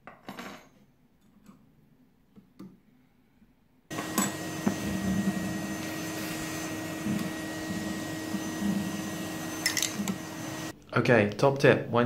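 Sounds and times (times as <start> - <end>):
vacuum cleaner running: 3.9 - 10.8.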